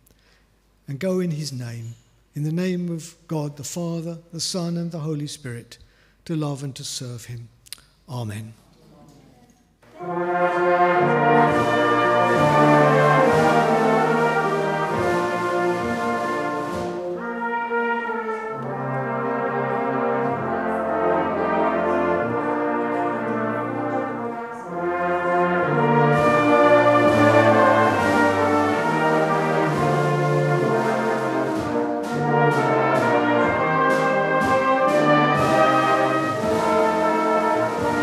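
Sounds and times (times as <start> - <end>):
brass band playing slow chords: 9.9 - 38.0.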